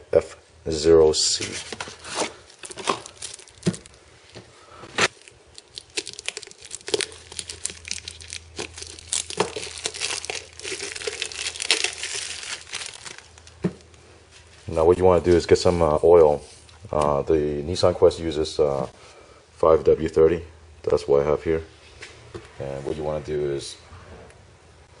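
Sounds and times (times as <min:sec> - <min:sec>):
plastic wrapper crinkling and tearing: 0:01.4 - 0:04.0, 0:05.0 - 0:13.9.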